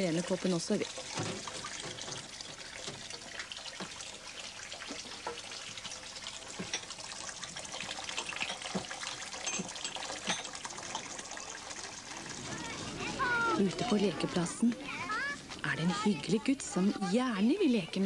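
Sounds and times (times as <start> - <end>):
tap water running into sink: 0.0 - 18.0
cups clinking: 4.8 - 12.4.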